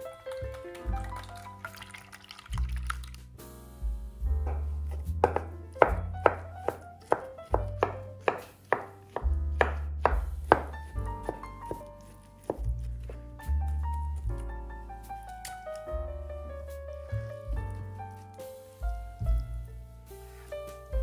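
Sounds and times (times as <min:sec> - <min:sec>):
background music: 0:00.0 - 0:21.0
knife chopping on cutting board: 0:04.4 - 0:13.2.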